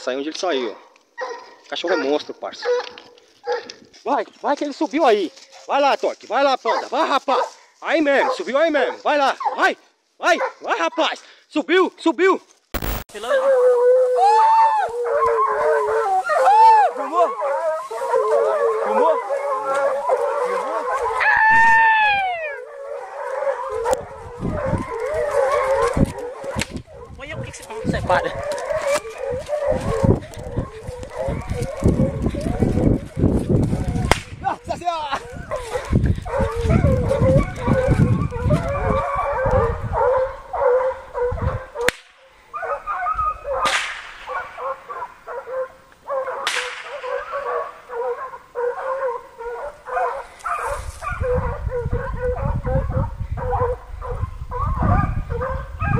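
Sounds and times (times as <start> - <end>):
hounds baying: 0.6 - 3.9, 6.6 - 11.1, 13.2 - 34.1, 35.1 - 55.9
sharp cracks: 12.7 - 13.2, 34.1 - 34.4, 41.8 - 42.2, 43.6 - 44.6, 46.4 - 47.3
dog howling: 13.2 - 34.1, 35.2 - 41.9, 42.6 - 43.6, 44.3 - 55.9.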